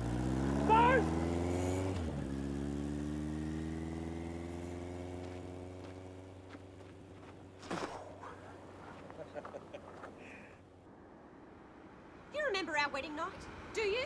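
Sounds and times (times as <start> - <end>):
motorcycle engine pulling away: 0.0 - 10.1.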